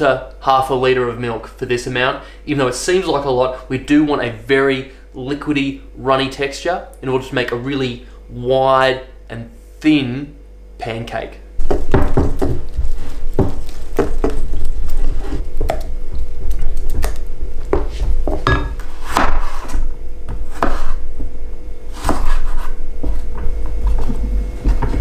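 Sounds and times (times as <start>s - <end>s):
knife cutting on wooden board: 20.4s - 21.0s, 21.9s - 23.2s.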